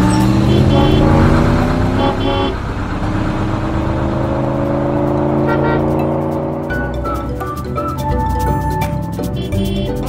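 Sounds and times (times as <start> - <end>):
cartoon engine hum rising: 0.0 - 10.0
short horn beeps: 0.4 - 2.6, 5.4 - 6.0, 9.4 - 10.0.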